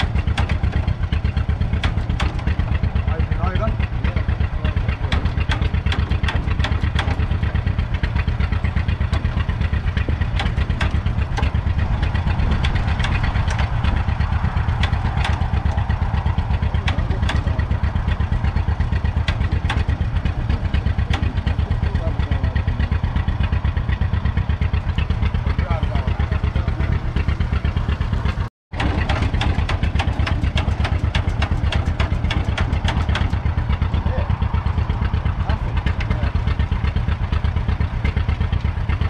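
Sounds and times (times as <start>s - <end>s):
clicking clatter: 0.0s - 3.0s, 4.8s - 22.3s, 28.4s - 33.9s
tractor engine idling: 0.0s - 39.0s.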